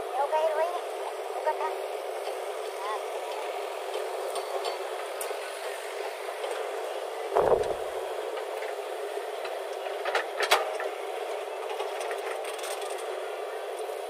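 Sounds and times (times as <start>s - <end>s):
backhoe engine drone: 0.9s - 14.0s
sharp knocks: 7.4s - 7.9s
heavy thud: 7.4s - 8.0s.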